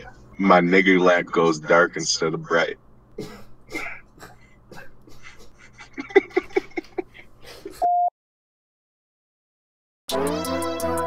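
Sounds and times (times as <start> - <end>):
man laughing: 5.0 - 7.8.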